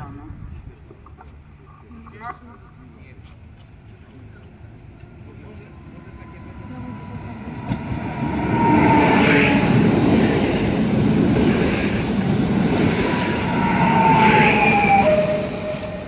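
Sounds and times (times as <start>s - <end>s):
train wheels rumbling on rails: 3.5s - 16.0s.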